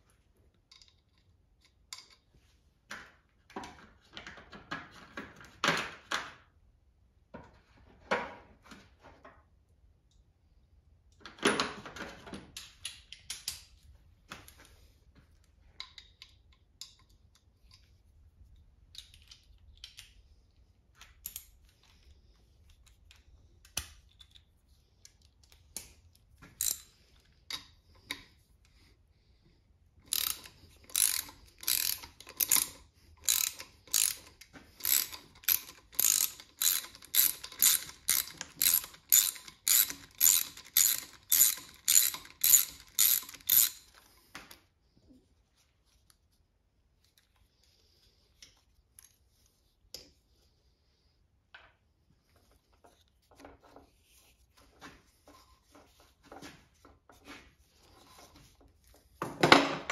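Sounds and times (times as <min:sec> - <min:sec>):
ratchet wrench clicking: 0:26.6 - 0:26.9, 0:30.1 - 0:44.0.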